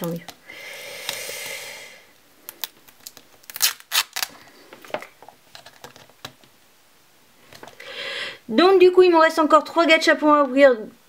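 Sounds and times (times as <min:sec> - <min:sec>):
plastic clicks and crinkles: 0:02.4 - 0:06.6.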